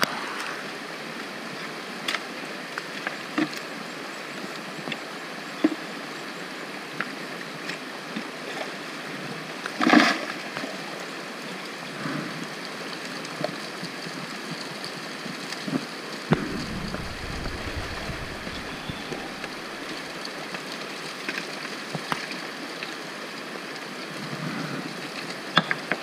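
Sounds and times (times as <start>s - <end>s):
creek running over rocks: 10.3s - 26.0s.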